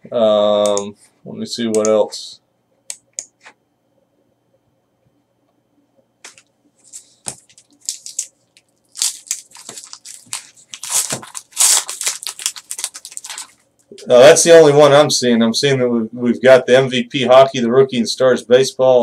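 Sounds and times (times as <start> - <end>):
wrapper tearing and crinkling: 6.9 - 13.6.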